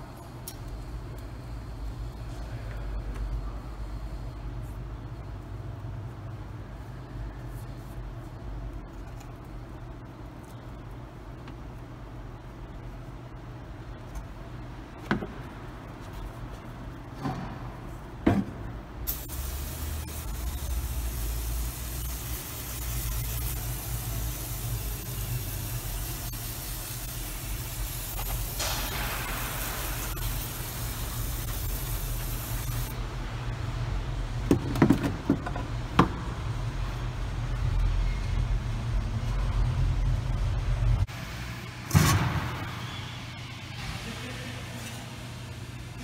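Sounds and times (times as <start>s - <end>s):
steady hiss: 19.0s - 33.0s.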